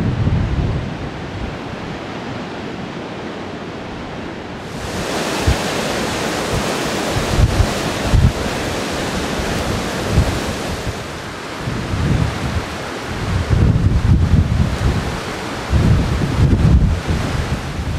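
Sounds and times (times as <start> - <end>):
wind buffeting microphone: 0.0 - 2.6, 4.6 - 17.9
surf breaking on rocks: 4.6 - 17.9.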